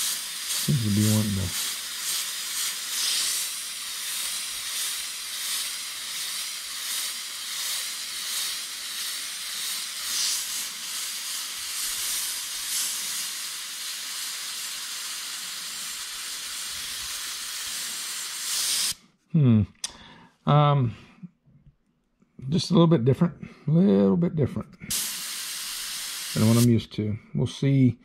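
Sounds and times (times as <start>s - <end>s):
airbrush hissing: 0.0s - 19.0s, 24.9s - 26.8s.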